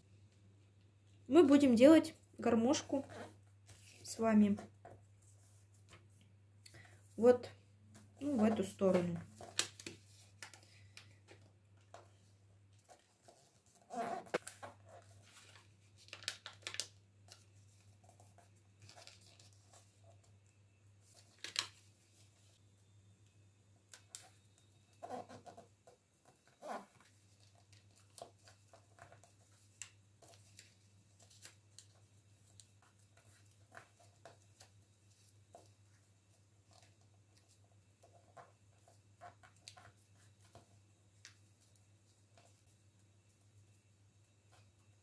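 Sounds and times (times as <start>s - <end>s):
paper rustling and crinkling: 7.9s - 22.6s, 23.9s - 42.8s.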